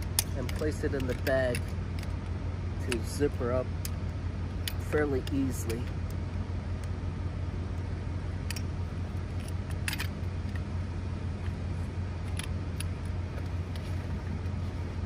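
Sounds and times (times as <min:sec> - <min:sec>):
metallic clicks and rattles: 0:00.0 - 0:03.2, 0:08.4 - 0:10.7
low hum: 0:00.0 - 0:15.0.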